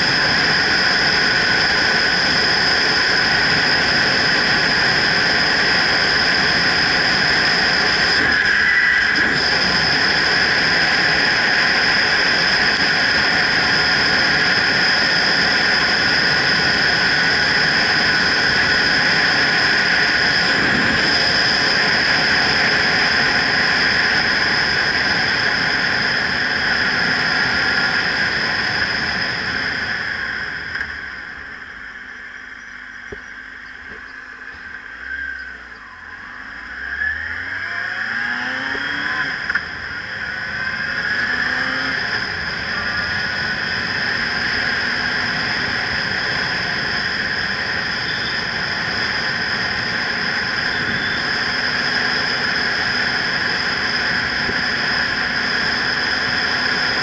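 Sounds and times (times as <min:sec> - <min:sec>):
motorcycle engine revving: 0:00.0 - 0:31.5, 0:32.6 - 0:57.0
wind rushing over microphone: 0:00.0 - 0:31.8.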